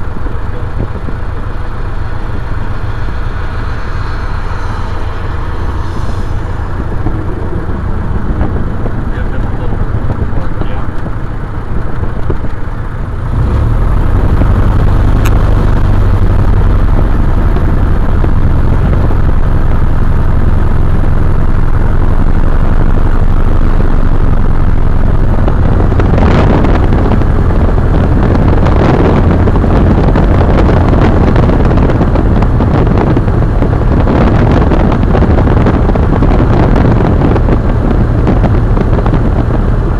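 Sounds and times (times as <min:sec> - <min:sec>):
light plane engine droning: 0:00.0 - 0:39.9.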